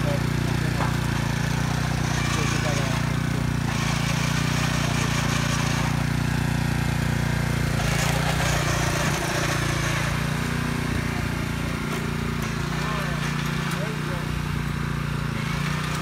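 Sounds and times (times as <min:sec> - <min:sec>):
tiller engine running: 0:00.0 - 0:16.0.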